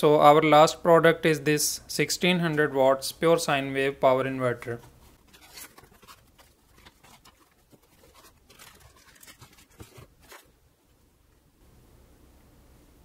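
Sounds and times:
cardboard box being opened: 5.2s - 10.5s.

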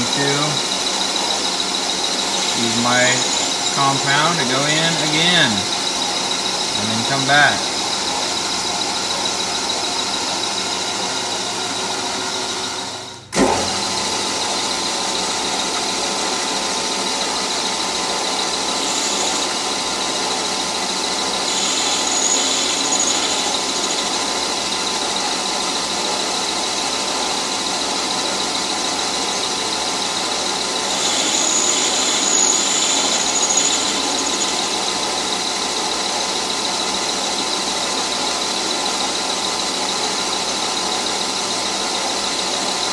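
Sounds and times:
metal lathe motor whine: 0.0s - 42.9s
faint high squeal: 21.5s - 24.1s, 30.9s - 34.9s.

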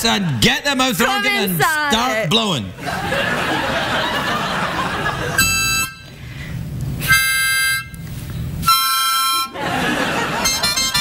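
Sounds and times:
harmonica chords: 5.3s - 6.4s, 7.0s - 8.0s, 8.6s - 9.6s, 10.2s - 11.0s
audience noise: 9.5s - 11.0s.

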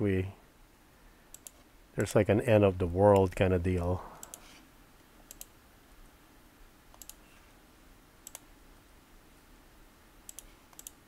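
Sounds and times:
faint room hum: 0.0s - 11.0s
computer mouse clicks: 1.3s - 2.1s, 4.2s - 4.5s, 5.3s - 5.5s, 6.9s - 7.2s, 8.2s - 8.5s, 10.3s - 11.0s.

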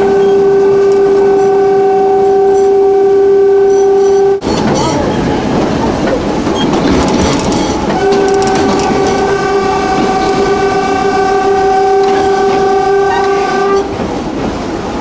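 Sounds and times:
tram horn blast: 0.0s - 5.3s, 7.6s - 14.0s
tram running noise: 0.0s - 15.0s.

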